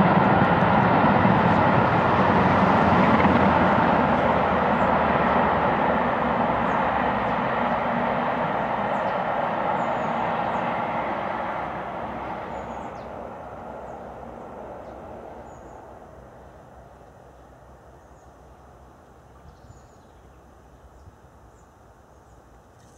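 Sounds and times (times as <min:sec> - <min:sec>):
steam train running at speed: 0:00.0 - 0:16.7.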